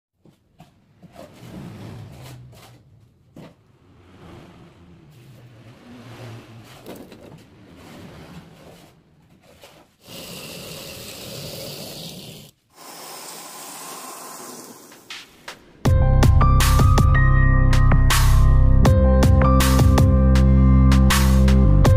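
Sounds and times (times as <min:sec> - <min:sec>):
metal scraping along bars: 0:00.9 - 0:10.4.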